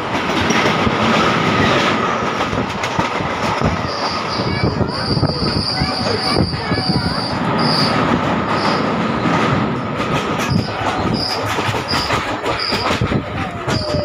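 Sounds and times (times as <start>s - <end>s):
train wheels clattering on rail: 0.0s - 14.0s.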